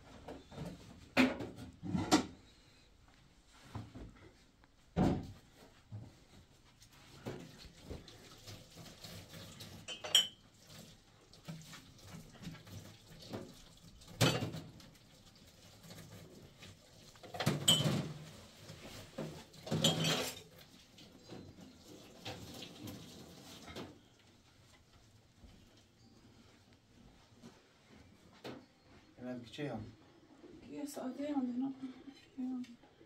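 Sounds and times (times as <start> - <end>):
household objects clinking and knocking: 9.7 - 10.4, 17.2 - 18.4, 19.2 - 20.5.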